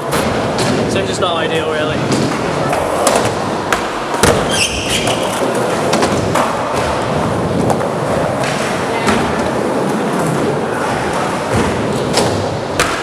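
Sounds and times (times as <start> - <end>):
skateboard wheels rolling: 0.0 - 13.0
skateboard landing thuds: 2.0 - 5.2
skateboard clacks: 2.0 - 13.0.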